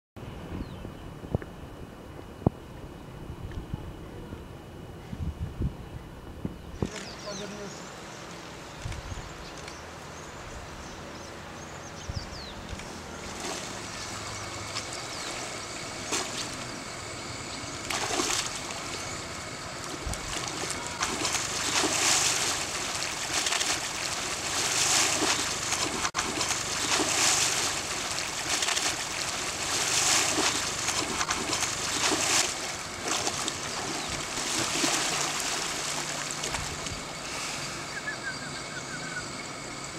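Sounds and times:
mud and water splashing: 12.6 - 38.4.

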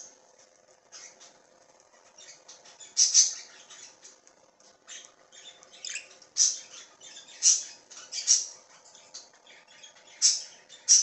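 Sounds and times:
budgerigars chirping and squawking: 0.9 - 1.3, 2.0 - 4.2, 4.8 - 11.0.

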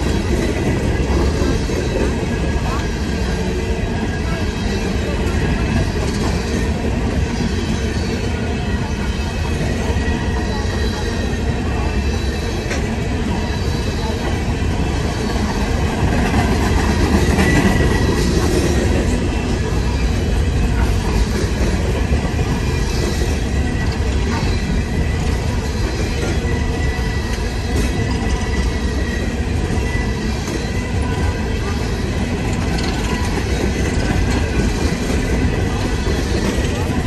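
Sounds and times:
train wheels rumbling on rail: 0.0 - 37.0
high wheel squeal: 22.5 - 36.9.

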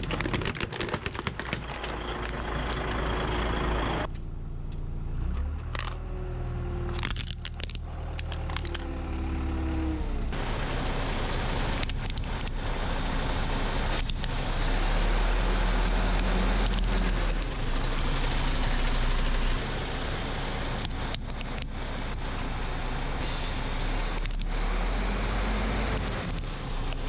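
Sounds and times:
tyre noise on concrete: 0.0 - 2.9
truck engine rumble: 0.0 - 27.0.

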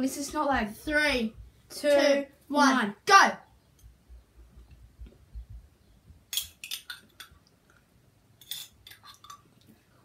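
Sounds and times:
soft low thumps: 0.2 - 1.8, 3.9 - 6.3
metal spoon clinking on container: 6.3 - 7.4, 8.4 - 9.4.

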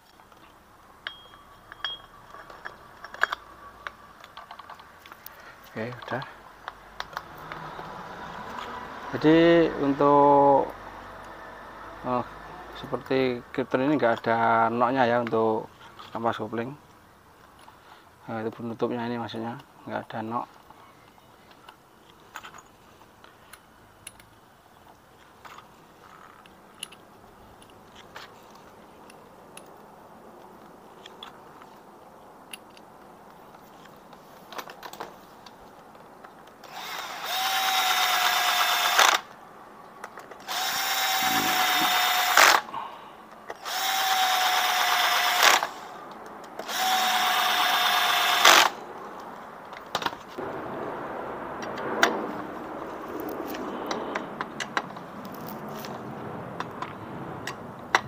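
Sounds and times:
small metal parts clicking: 0.0 - 7.5, 25.4 - 29.8
power drill whining: 36.7 - 39.2, 40.4 - 42.6, 43.6 - 45.9, 46.6 - 48.7.

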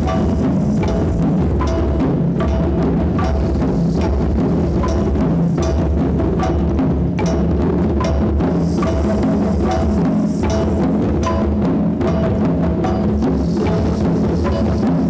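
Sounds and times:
hand drums playing rhythm: 0.0 - 15.0.

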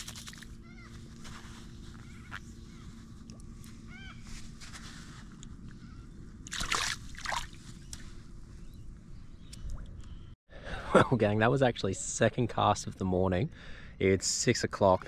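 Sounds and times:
water splashing and sloshing: 0.0 - 1.3, 6.4 - 8.1.

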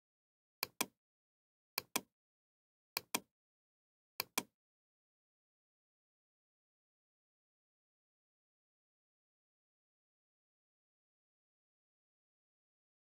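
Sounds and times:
computer mouse button clicking: 0.6 - 1.0, 1.8 - 2.1, 3.0 - 3.3, 4.2 - 4.5.

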